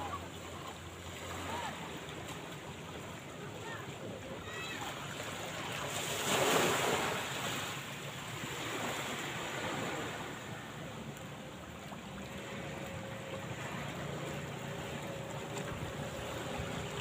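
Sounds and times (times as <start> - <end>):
small waves washing onto sand: 0.0 - 17.0
wind: 0.0 - 17.0.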